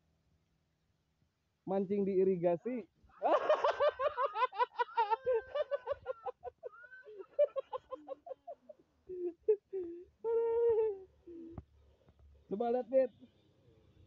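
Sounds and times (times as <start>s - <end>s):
person laughing: 3.2s - 11.6s.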